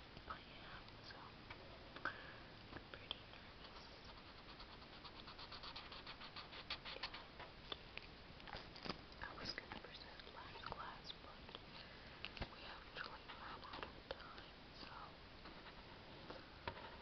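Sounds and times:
marker scratching on paper: 3.6 - 7.3.

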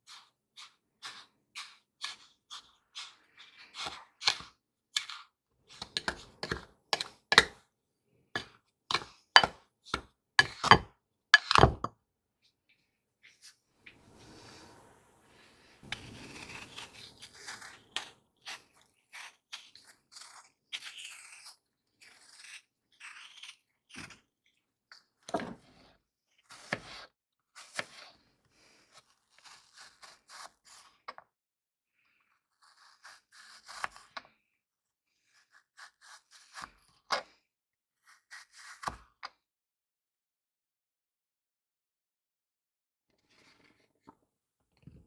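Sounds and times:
knife cutting apple slices: 0.0 - 7.6, 8.4 - 11.9, 15.8 - 24.3, 26.4 - 28.2, 28.9 - 31.2, 32.6 - 34.4, 35.2 - 37.4, 38.0 - 39.1.

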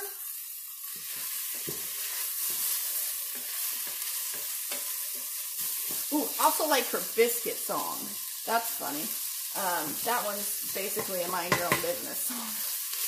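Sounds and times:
food sizzling in a pot: 0.0 - 13.0.

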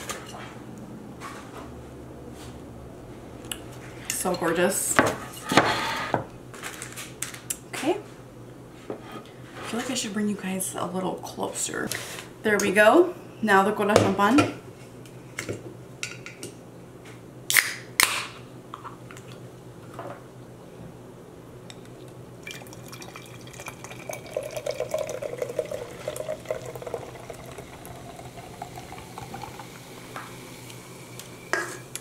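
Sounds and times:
can snapping open: 17.5 - 18.3
soda fizzing into a glass: 22.4 - 31.5.

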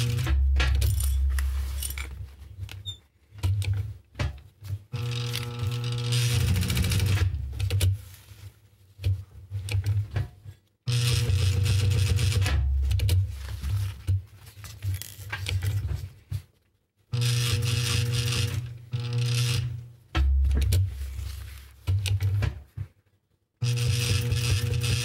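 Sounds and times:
sewing machine stitching: 0.0 - 1.3, 4.9 - 7.9, 10.9 - 13.2, 17.2 - 19.8, 23.6 - 25.0.

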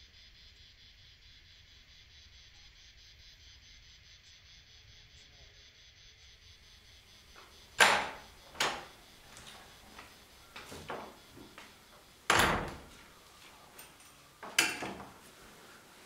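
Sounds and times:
sharp ringing knocks and clunks: 7.4 - 11.7, 12.3 - 13.0.

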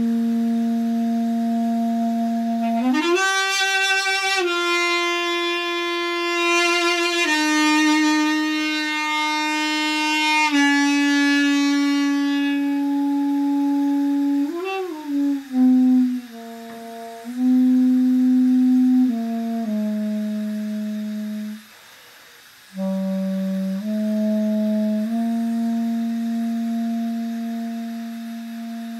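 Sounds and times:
duduk slow melody: 0.0 - 21.6.

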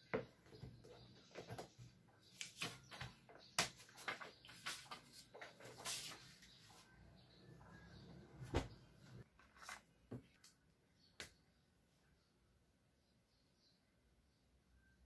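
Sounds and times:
paper rustling: 1.2 - 6.8, 9.3 - 10.5.

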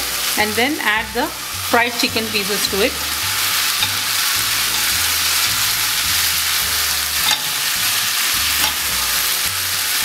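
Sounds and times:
food sizzling in a frying pan: 0.0 - 10.0
spatula stirring food: 3.1 - 10.0.

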